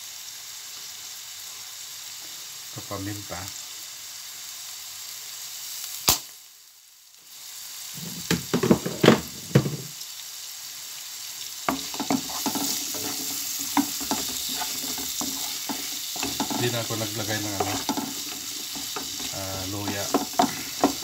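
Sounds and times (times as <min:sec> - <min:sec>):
food sizzling in a frying pan: 0:00.0 - 0:21.0
knocks: 0:08.1 - 0:09.9
utensil scraping a pan: 0:11.7 - 0:21.0.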